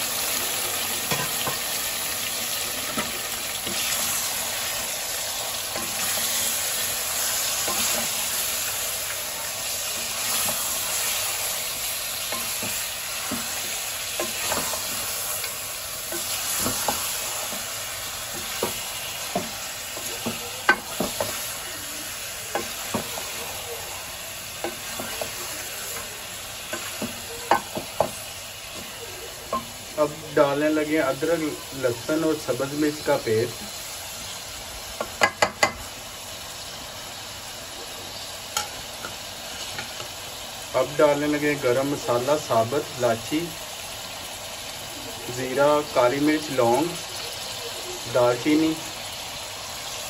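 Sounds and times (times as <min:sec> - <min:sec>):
meat sizzling in oil: 0:00.0 - 0:50.0
wooden spoon knocking on pot: 0:18.3 - 0:21.4, 0:22.5 - 0:23.2, 0:26.7 - 0:28.9, 0:35.0 - 0:35.8.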